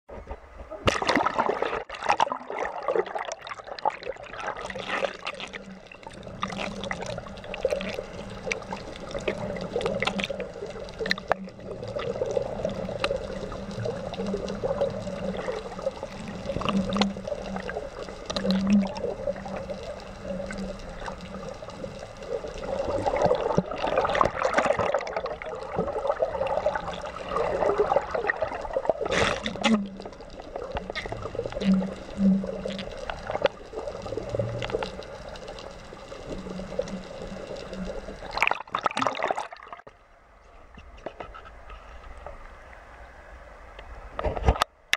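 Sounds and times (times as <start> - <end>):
seawater sloshing and splashing: 0.1 - 35.2, 36.2 - 39.9
small clicks: 4.6 - 24.4, 29.1 - 38.5.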